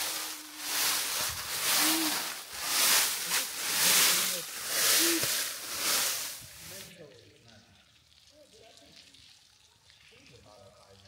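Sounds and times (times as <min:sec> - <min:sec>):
person breathing heavily: 0:00.0 - 0:06.4.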